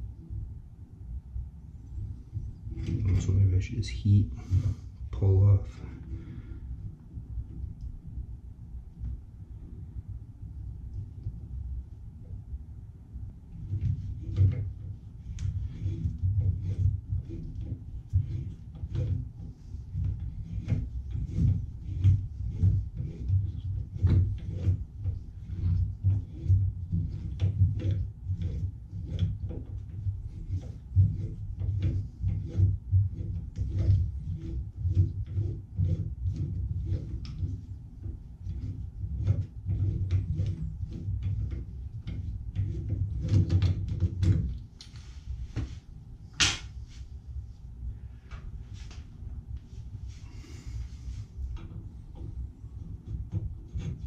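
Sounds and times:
steady low rumble: 0.0s - 23.0s.

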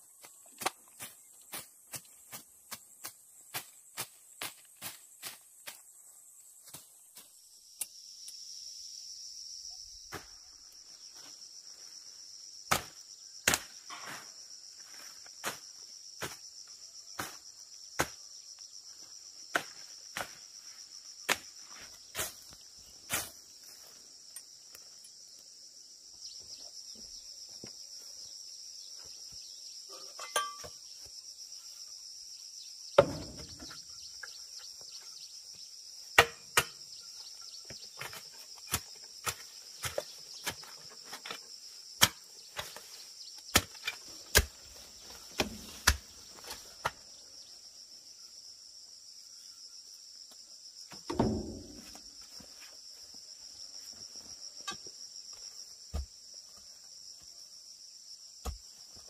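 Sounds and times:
insects droning: 0.0s - 59.0s
sharp knocks: 33.0s - 33.8s, 51.0s - 52.0s
heavy thud: 51.1s - 52.0s.

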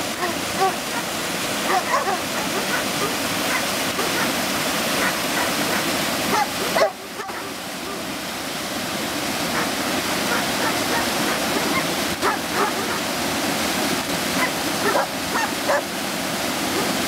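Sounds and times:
small waterfall rushing over rocks: 0.0s - 17.0s
dogs barking: 0.1s - 4.4s, 5.0s - 8.1s, 9.5s - 13.1s, 14.4s - 15.9s, 16.7s - 17.0s.

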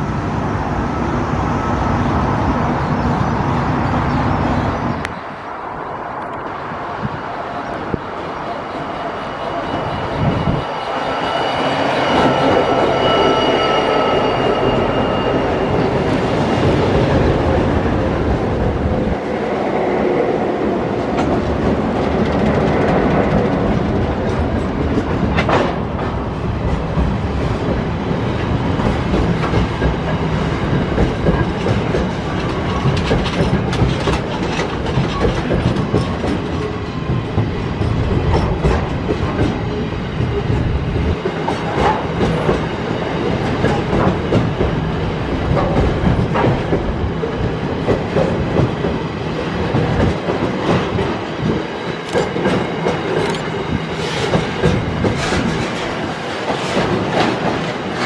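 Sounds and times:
locomotive engine whine: 0.0s - 21.1s
train wagons rumbling: 0.0s - 58.0s.

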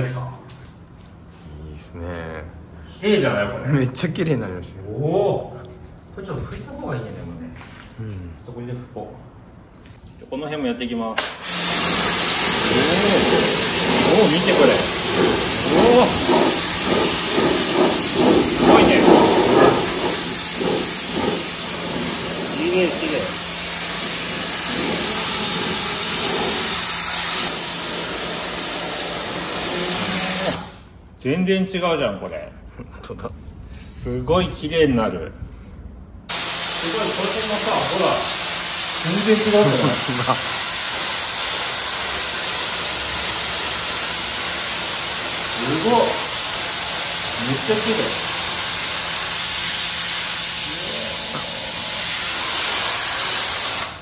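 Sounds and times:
pump motor hum: 11.2s - 30.5s
pressure washer spray hiss: 11.2s - 30.9s, 36.3s - 54.0s.

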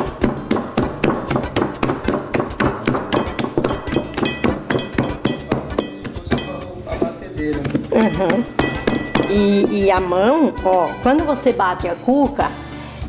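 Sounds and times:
hand slapping dough: 0.0s - 9.9s
glass bowl clinking: 1.2s - 10.1s.

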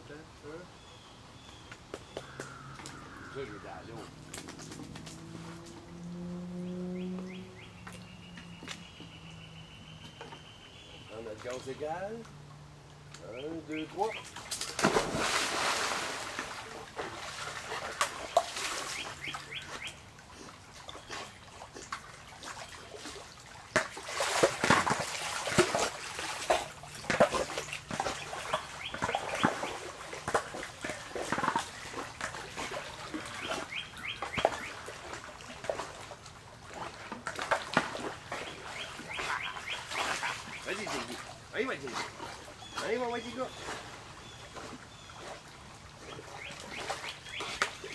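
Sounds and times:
dog splashing in pool: 14.0s - 47.9s.

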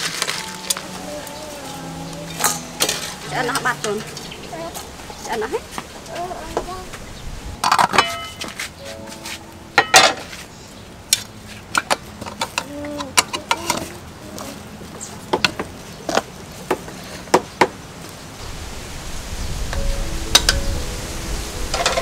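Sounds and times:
utensils clinking against metal pots: 2.2s - 5.6s, 7.6s - 10.5s.

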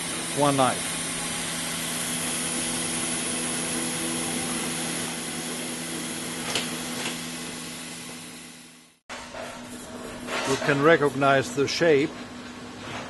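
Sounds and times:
machine humming: 0.0s - 9.0s.

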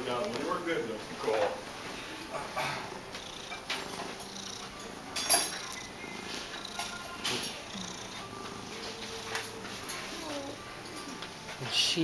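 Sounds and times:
cat purring: 3.0s - 11.2s.

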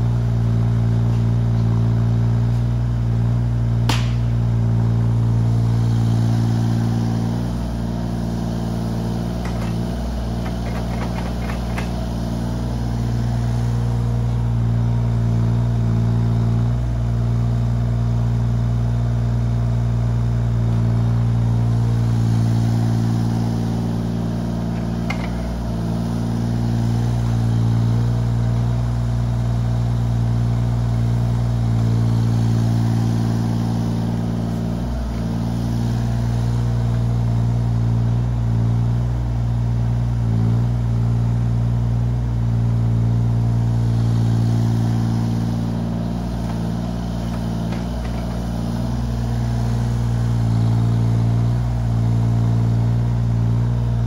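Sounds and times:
diesel engine running: 0.0s - 54.0s
single knock: 3.9s - 4.3s.

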